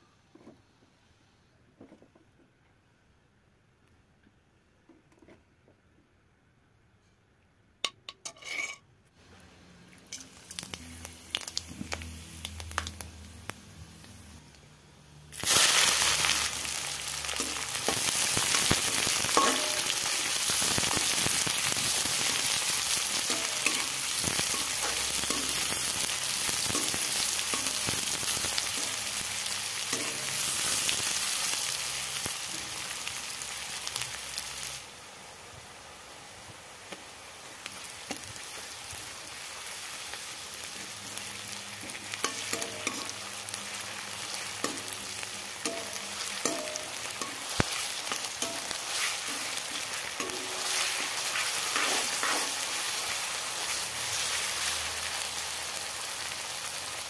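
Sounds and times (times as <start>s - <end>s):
steel ladle scraping and clinking: 8.1s - 8.9s, 19.3s - 20.0s, 42.3s - 43.2s
onions frying with loud sizzle: 9.2s - 57.0s
ghee crackling: 9.9s - 14.6s, 15.4s - 32.4s.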